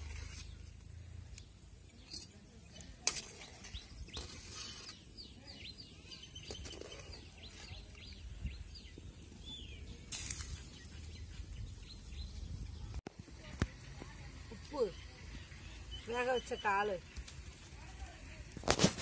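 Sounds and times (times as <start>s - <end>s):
low steady background rumble: 0.0s - 4.5s
bird chirping: 0.2s - 13.0s, 13.6s - 17.9s.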